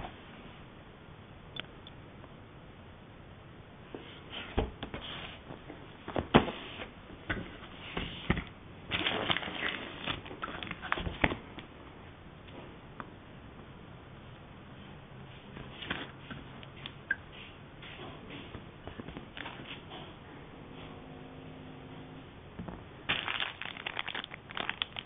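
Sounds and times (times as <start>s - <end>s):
cardboard packaging rustling: 8.9s - 11.4s, 19.0s - 19.8s, 23.1s - 25.0s.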